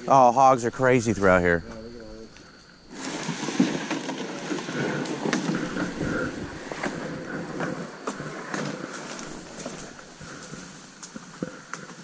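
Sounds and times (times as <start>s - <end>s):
footsteps rustling through undergrowth: 2.5s - 12.0s.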